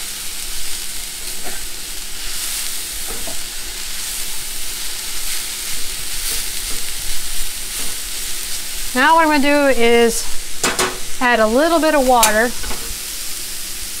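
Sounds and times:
vegetables sizzling in a skillet: 0.0s - 14.0s.

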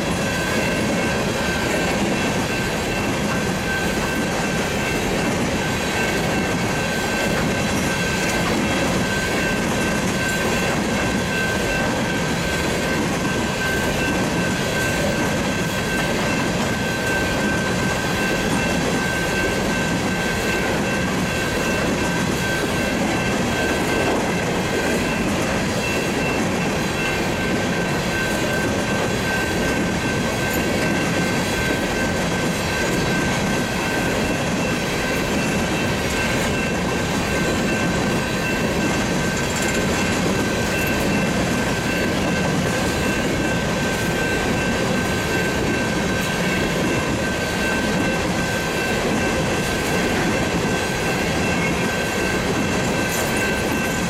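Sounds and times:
high ringing tone: 0.0s - 54.0s
train wheels clattering on rails: 0.0s - 54.0s.

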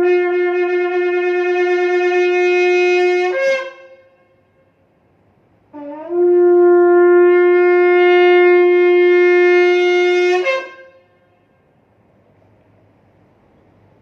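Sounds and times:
shofar blast: 0.0s - 4.8s, 5.7s - 11.7s.

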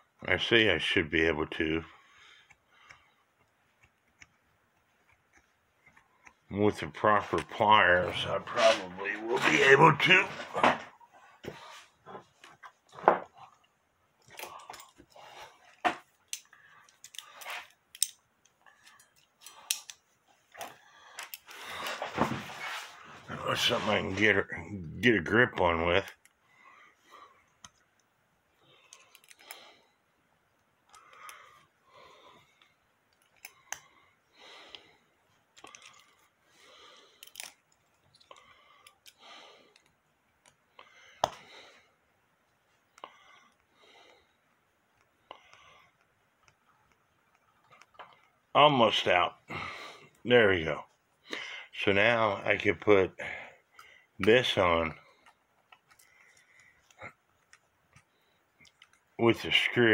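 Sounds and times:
pliers metal clicks and creaks: 15.7s - 20.0s, 20.6s - 21.5s, 28.9s - 29.6s, 33.1s - 33.8s, 37.2s - 40.6s.

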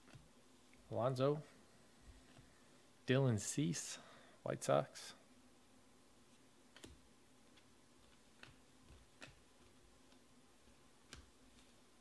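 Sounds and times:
cards ticking as handled: 6.7s - 11.8s.

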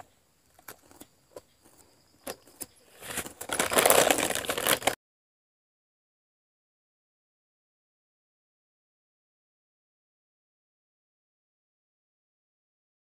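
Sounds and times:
loud rustling crackle: 1.6s - 5.0s.

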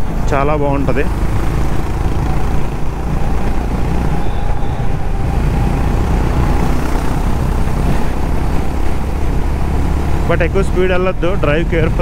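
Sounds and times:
motorcycle engine drone: 0.0s - 12.0s
wind rush on microphone: 1.1s - 10.4s.

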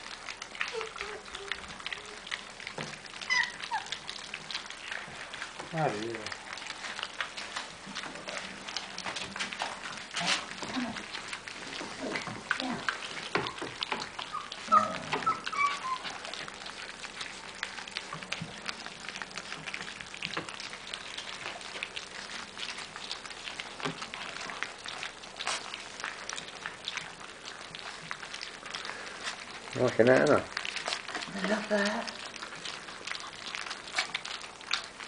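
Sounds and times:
puppies lapping and chewing: 0.0s - 35.0s
puppy whining: 0.5s - 5.0s, 11.7s - 18.0s.

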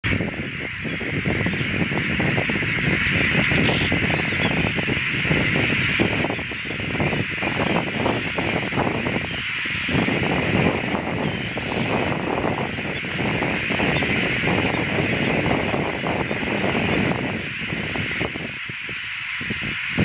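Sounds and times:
wind buffeting microphone: 0.0s - 20.0s
gull colony calling: 0.1s - 20.0s
single gull calls: 0.8s - 1.8s, 3.3s - 15.4s.

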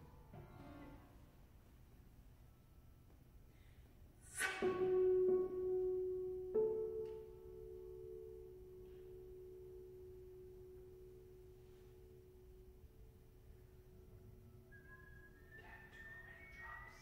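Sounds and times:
piano strings ringing: 4.4s - 17.0s.

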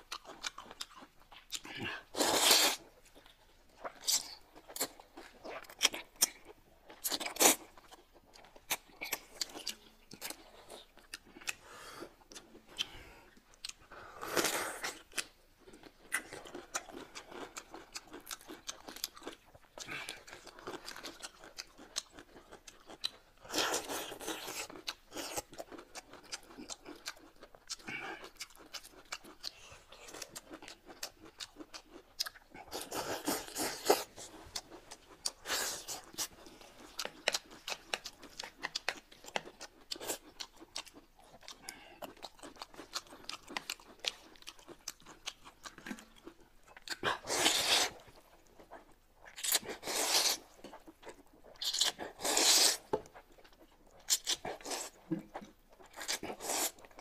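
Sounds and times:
chewing and crunching: 0.0s - 57.0s
loud slurp of noodles: 49.8s - 50.4s, 52.2s - 52.9s.

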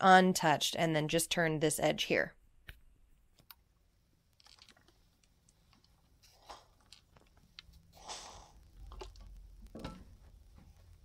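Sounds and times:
small clicks: 4.3s - 6.0s.

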